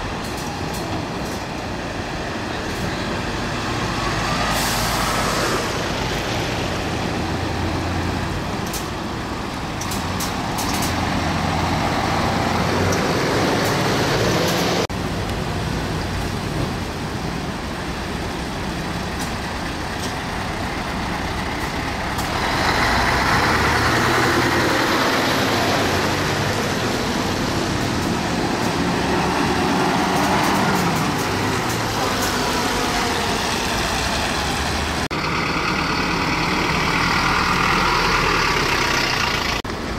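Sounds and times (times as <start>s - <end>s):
diesel truck engines: 0.0s - 39.9s
tyre noise on wet road: 0.0s - 39.9s.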